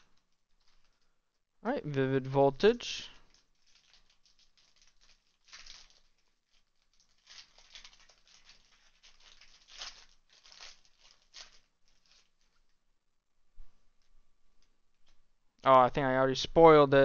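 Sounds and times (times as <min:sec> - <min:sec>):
foil wrapper crinkling: 0:00.0 - 0:01.4, 0:02.9 - 0:12.8.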